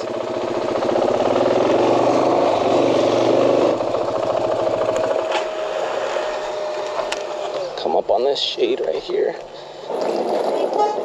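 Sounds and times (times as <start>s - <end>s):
motorcycle engine running: 0.0s - 8.0s.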